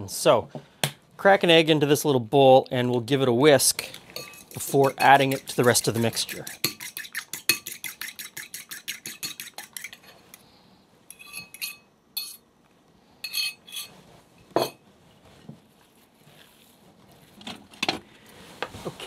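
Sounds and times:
fork whisking egg in bowl: 3.8 - 10.4, 11.1 - 12.4.

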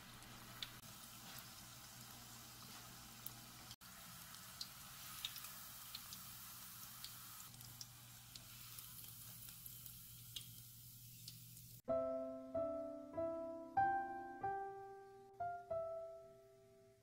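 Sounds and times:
deep-frying sizzle with pops: 0.0 - 11.8.

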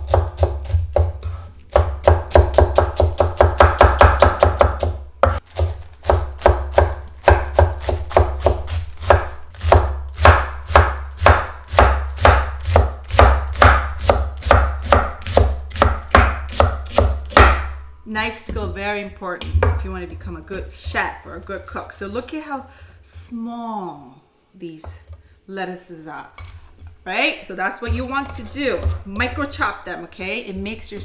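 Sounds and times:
knife chopping lettuce on board: 0.0 - 17.6.

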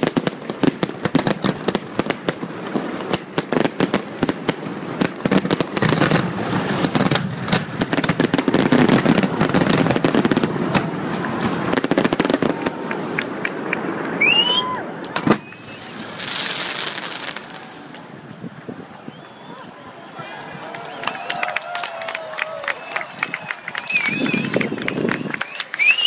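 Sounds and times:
fireworks bangs and crackling: 0.0 - 26.0
rising firework whistle: 5.4 - 26.0.

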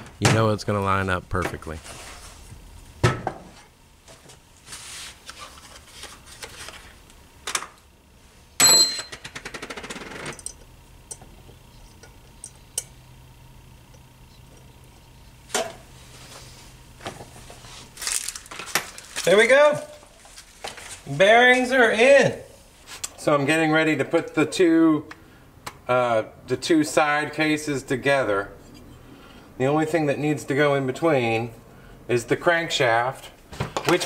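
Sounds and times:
faint low hum: 10.2 - 21.5.

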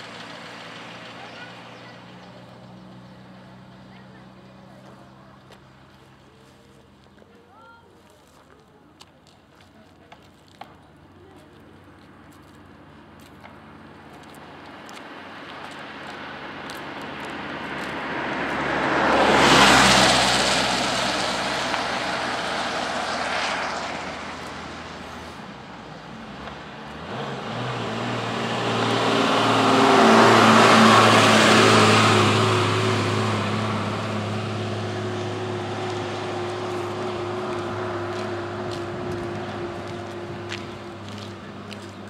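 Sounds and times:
steady engine hum: 0.0 - 42.0
vehicle engine and road noise: 0.0 - 42.0.

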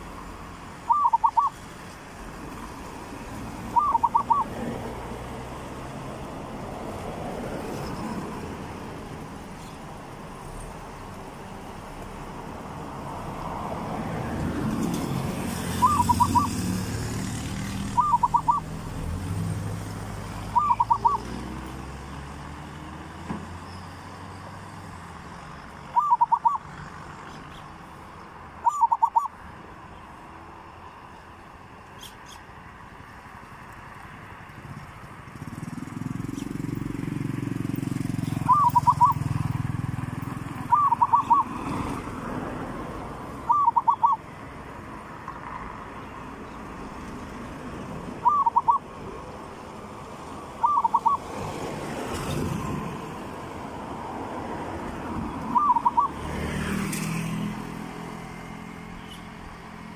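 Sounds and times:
dove cooing: 0.8 - 1.6, 3.7 - 4.7, 15.6 - 16.6, 17.8 - 18.8, 20.4 - 21.4, 25.9 - 26.7, 28.6 - 29.4, 38.2 - 39.4, 40.6 - 41.8, 43.4 - 44.3, 48.2 - 48.9, 50.6 - 51.4, 55.3 - 56.3.

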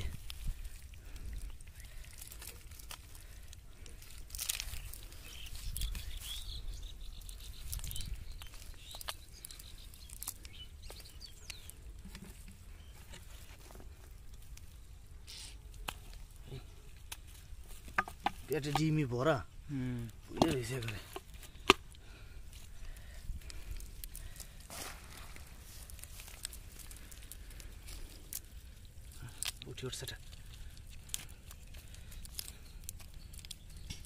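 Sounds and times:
wet net mesh rustling: 24.2 - 28.6.

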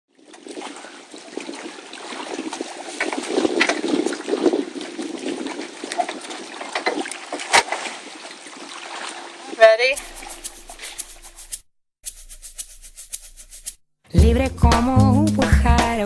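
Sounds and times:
water lapping against dock: 0.1 - 11.3.

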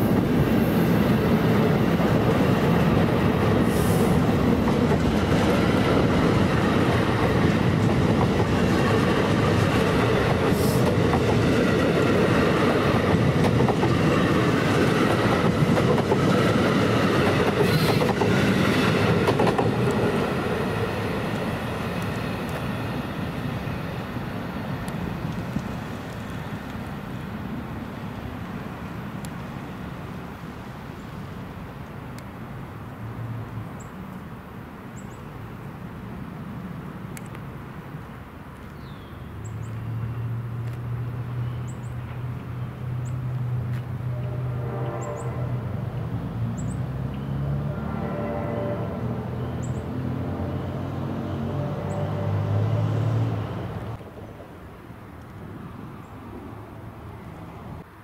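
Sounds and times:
train coaches rumbling past: 0.0 - 32.1, 39.3 - 58.0
wheels clicking over rail joints: 1.6 - 23.0.

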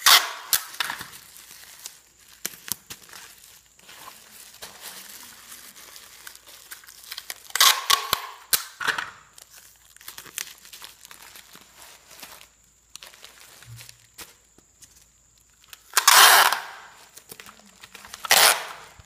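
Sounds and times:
tape tearing: 0.0 - 12.4, 15.6 - 19.0
plastic bag crinkling: 0.5 - 8.5, 9.2 - 16.0.

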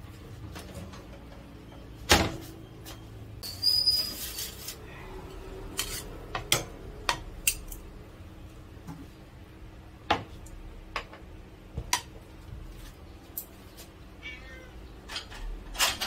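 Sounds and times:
dish sliding with squeak: 3.4 - 4.8.

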